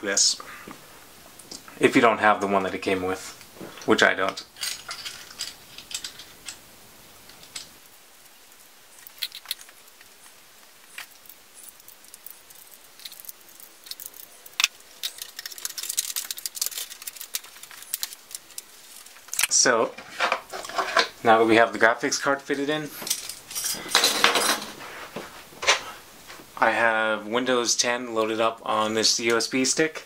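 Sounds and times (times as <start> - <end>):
small metal clicks and rattles: 4.2 - 6.6, 7.2 - 19.5.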